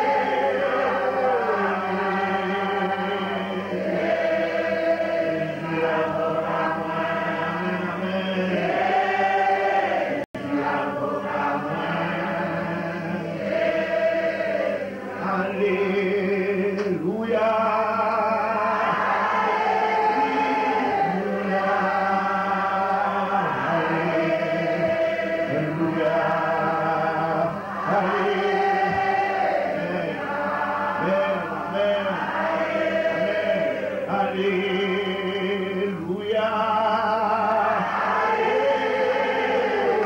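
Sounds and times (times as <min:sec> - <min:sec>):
voices singing along: 0:00.0 - 0:40.0
man singing into a microphone: 0:15.2 - 0:18.8, 0:34.1 - 0:37.8.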